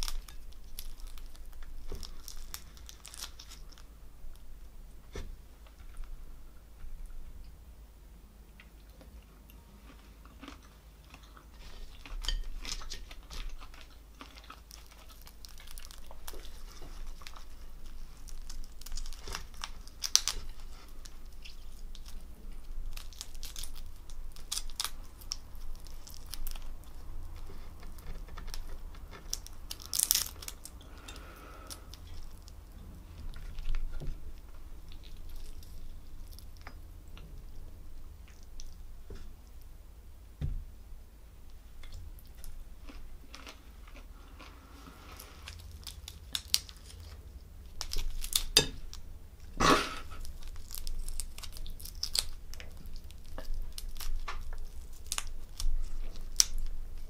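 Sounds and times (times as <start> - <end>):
prawn shells crackling: 0.0 - 4.5, 9.9 - 36.8, 42.2 - 49.0, 50.0 - 57.0
chewing: 8.5 - 37.3, 41.8 - 47.2.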